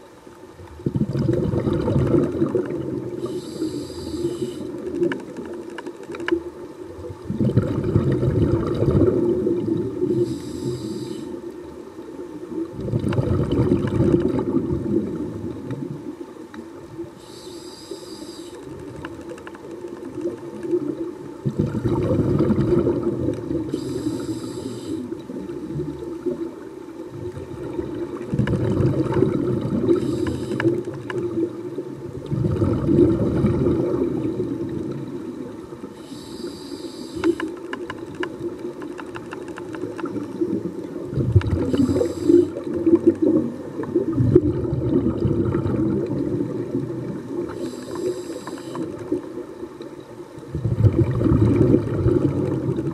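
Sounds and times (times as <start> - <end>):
exhaled bubbles rumbling: 0.6 - 17.2, 18.6 - 35.9, 37.2 - 52.9
regulator hiss: 3.1 - 4.9, 10.0 - 11.5, 17.2 - 18.9, 23.5 - 25.7, 29.8 - 30.9, 35.9 - 37.6, 41.6 - 42.7, 47.5 - 49.1.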